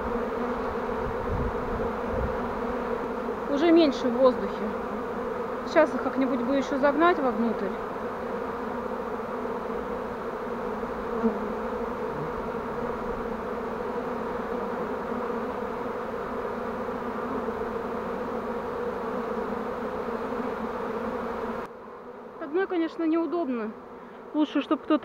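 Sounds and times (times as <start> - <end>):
bees buzzing: 0.0 - 25.0.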